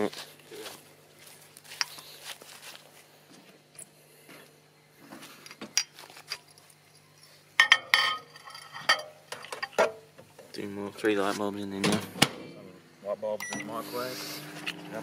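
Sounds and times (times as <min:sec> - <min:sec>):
flip-flop footsteps on grass: 0:00.0 - 0:06.3
glass light bulbs clinking: 0:05.8 - 0:09.8.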